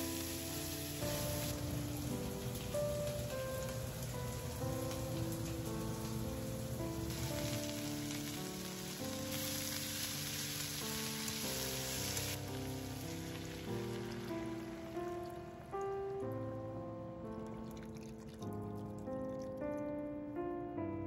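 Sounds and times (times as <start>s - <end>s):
food sizzling in frying pan: 0.0s - 16.3s
gentle background music: 0.0s - 21.0s.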